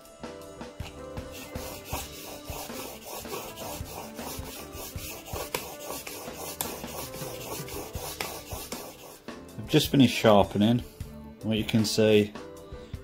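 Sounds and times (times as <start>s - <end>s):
steel scraping on whetstone: 1.2s - 9.3s.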